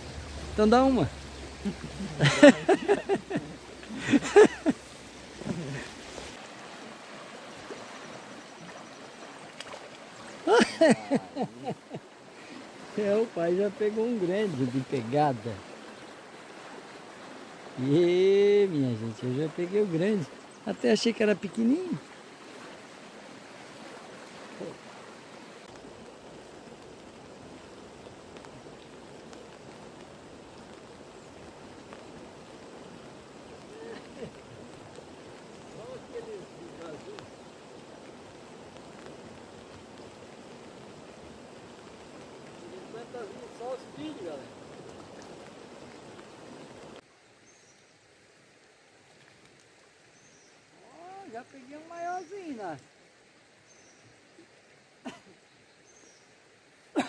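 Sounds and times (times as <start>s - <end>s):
creek rushing: 0.0s - 57.0s
low grunt: 5.4s - 6.0s.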